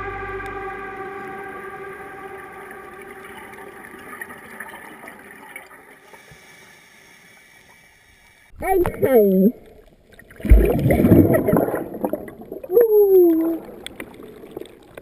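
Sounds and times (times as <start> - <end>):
slow background music: 0.0 - 4.7.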